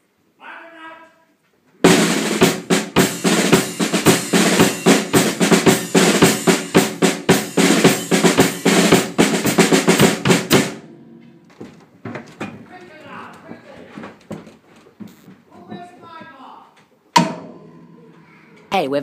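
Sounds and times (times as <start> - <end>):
drum kit played fast: 1.8 - 11.6, 15.0 - 15.9, 17.2 - 19.0.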